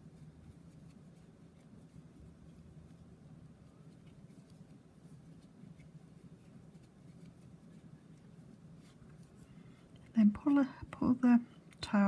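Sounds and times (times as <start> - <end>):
faint low hum: 0.0 - 12.0
crochet hook ticks and scratches: 3.6 - 12.0.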